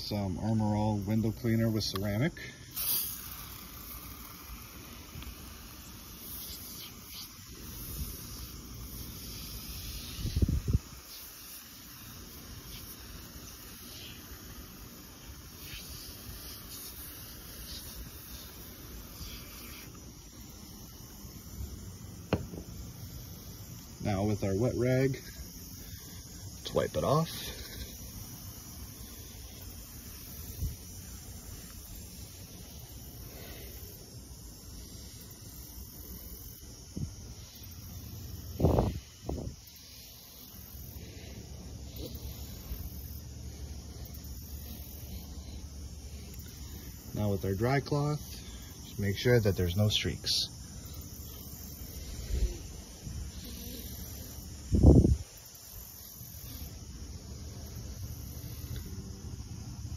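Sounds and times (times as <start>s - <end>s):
aerosol can spraying: 1.8s - 24.3s, 25.2s - 36.6s.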